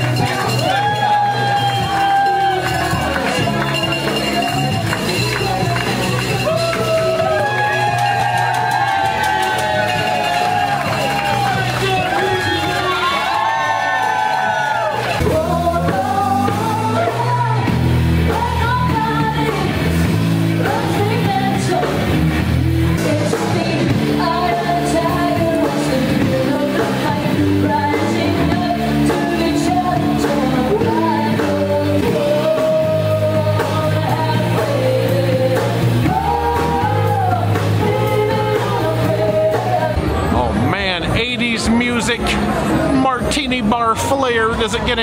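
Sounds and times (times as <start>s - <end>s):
bass guitar: 0.0s - 45.0s
drum kit: 0.0s - 45.0s
woman singing lead: 15.0s - 19.9s, 20.6s - 22.2s, 22.9s - 40.3s.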